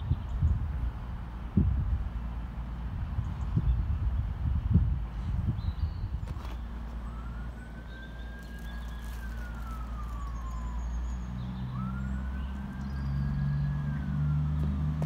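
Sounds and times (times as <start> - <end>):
emergency siren wailing: 6.8 - 15.0.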